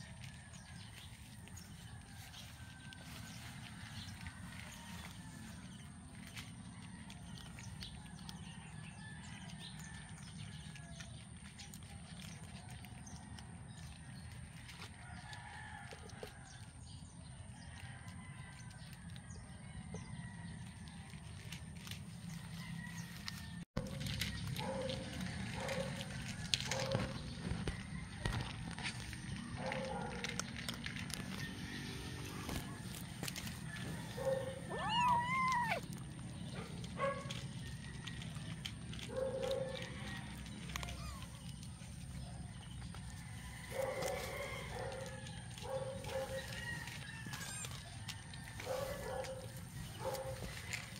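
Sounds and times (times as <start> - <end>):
kittens crunching dry kibble: 0.0 - 50.9
kitten meowing: 34.6 - 35.9.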